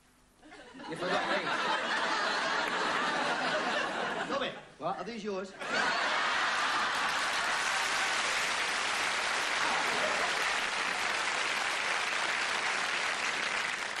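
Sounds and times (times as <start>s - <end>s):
studio audience applause: 5.6s - 14.0s.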